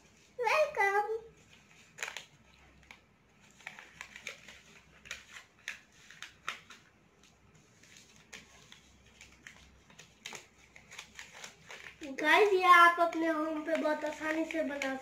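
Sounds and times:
paper rustling and crinkling: 1.3s - 15.0s.

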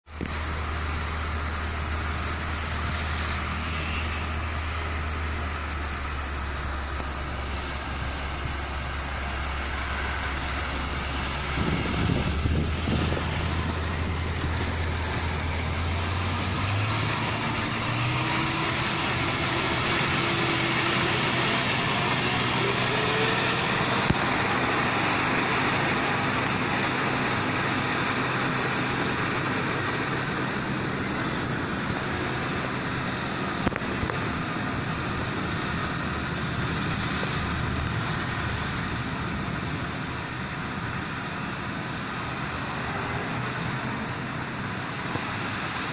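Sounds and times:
combine harvester engine droning: 0.1s - 45.9s
approaching vehicle rising tone: 0.4s - 31.1s.

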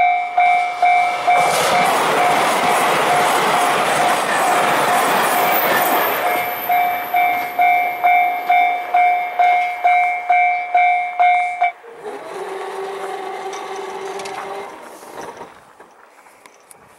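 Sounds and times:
level crossing alarm ringing: 0.0s - 11.8s
train rushing past: 0.0s - 16.4s.

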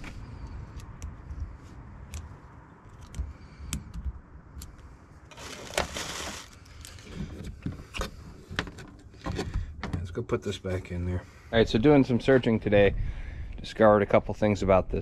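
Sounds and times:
rustle: 5.3s - 7.1s.

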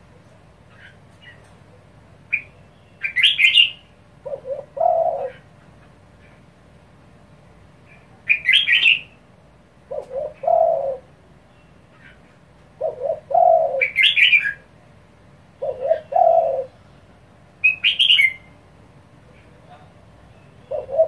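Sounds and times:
dove cooing: 3.1s - 6.4s, 9.8s - 11.2s, 12.0s - 14.7s, 15.5s - 16.8s, 20.6s - 21.0s.

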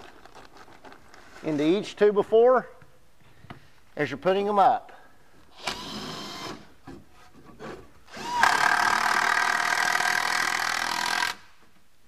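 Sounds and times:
power drill driving a screw into wood: 5.6s - 6.7s, 8.1s - 11.5s.

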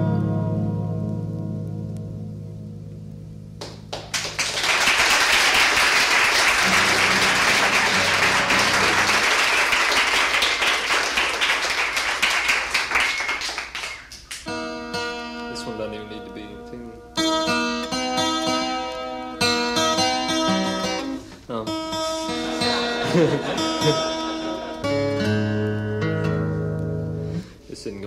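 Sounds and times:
audience applauding: 3.6s - 14.5s, 22.4s - 24.8s.

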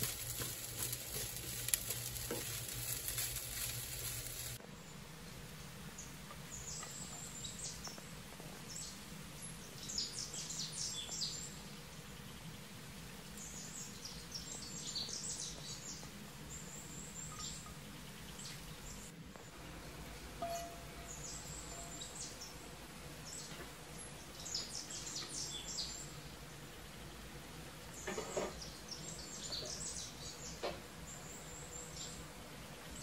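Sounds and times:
low steady hum: 0.0s - 33.0s
bird chirping: 5.9s - 12.6s, 13.3s - 19.8s, 20.4s - 27.2s, 27.9s - 33.0s.

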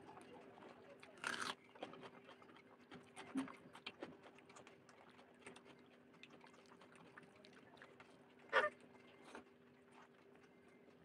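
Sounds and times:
wet chewing: 1.0s - 8.1s
crunchy bite into onion: 1.2s - 1.6s.

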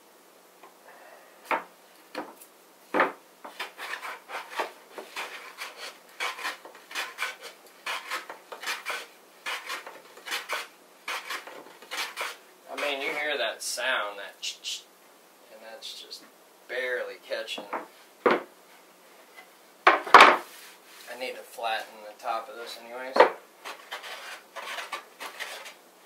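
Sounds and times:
bench plane scraping wood: 3.5s - 13.3s, 23.6s - 25.8s.

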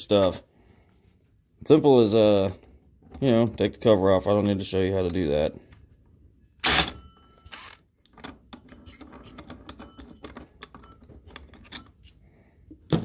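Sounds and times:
impact driver burst: 6.6s - 7.0s
metal parts clicking and rattling: 6.8s - 12.0s.

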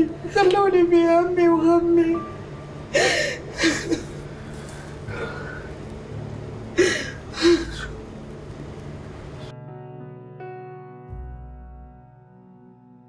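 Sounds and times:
low steady drone: 0.0s - 10.3s
soft piano music: 0.0s - 13.0s
woman sobbing: 2.9s - 4.3s, 6.7s - 8.0s.

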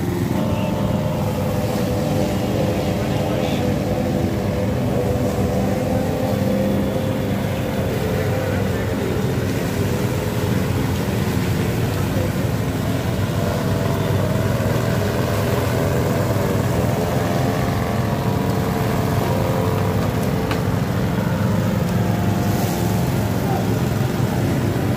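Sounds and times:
lawn mower engine running: 0.0s - 24.9s.

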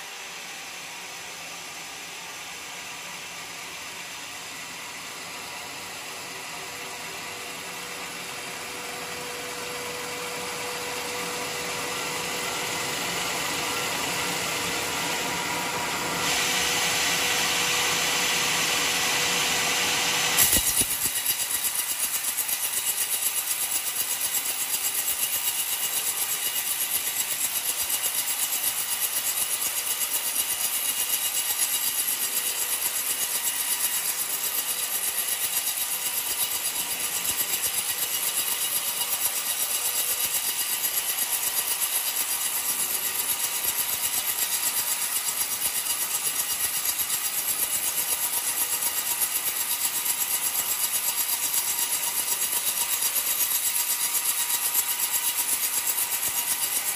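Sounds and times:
saw blade cutting log: 16.2s - 56.9s.

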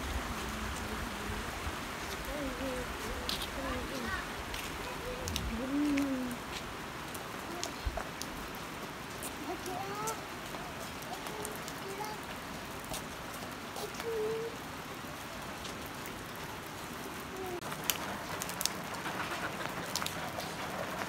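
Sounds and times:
light rain falling: 0.0s - 21.0s
sharp water drips: 3.2s - 20.6s.

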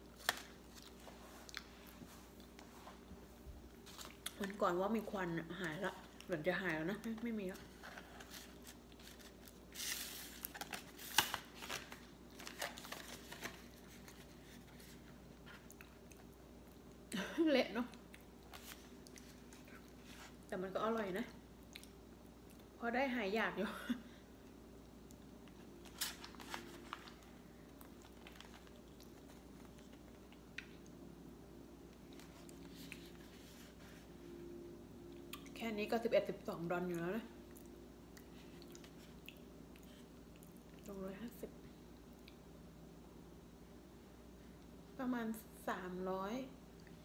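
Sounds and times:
steady low hum: 0.0s - 47.0s
plastic bag crinkling: 8.2s - 14.6s, 25.8s - 30.2s.

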